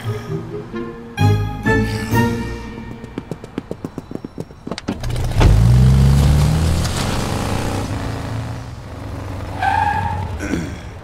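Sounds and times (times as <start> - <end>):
car engine revving: 5.0 - 10.3.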